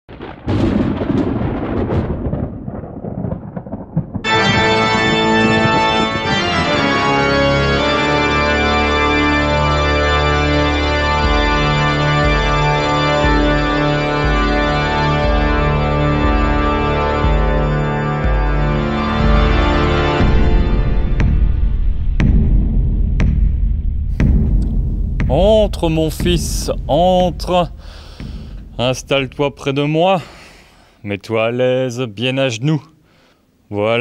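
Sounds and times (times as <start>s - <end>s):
organ chords: 4.2s - 23.4s, 24.1s - 30.7s
low pulsing bass line: 4.2s - 30.0s
noise with sharp strikes: 20.2s - 30.6s.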